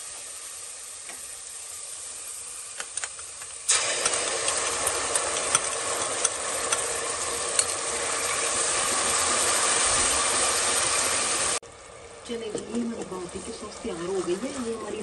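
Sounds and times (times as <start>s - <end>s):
sauce sizzling in hot oil: 0.0s - 15.0s
wooden spatula stirring: 12.7s - 15.0s.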